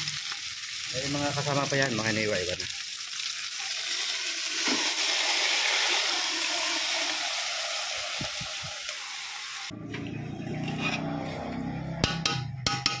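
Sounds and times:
octopus sizzling in a pot: 0.0s - 9.7s.

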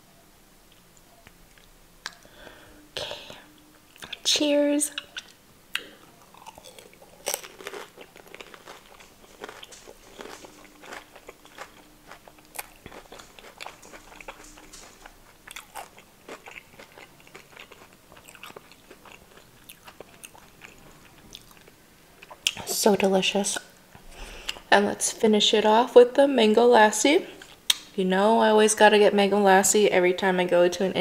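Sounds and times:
crunching and chewing: 3.9s - 4.3s, 4.9s - 22.8s.

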